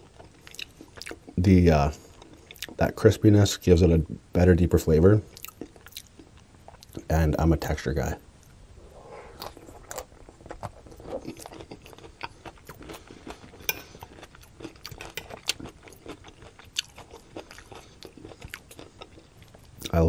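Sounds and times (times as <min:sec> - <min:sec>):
chewing crunches: 0:00.0 - 0:01.4, 0:05.3 - 0:07.1, 0:09.4 - 0:20.0.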